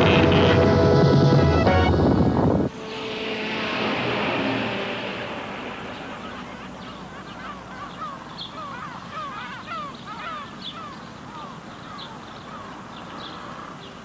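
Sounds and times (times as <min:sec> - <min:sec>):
loud wash of sound: 0:00.0 - 0:07.8
flock of birds calling: 0:02.8 - 0:14.0.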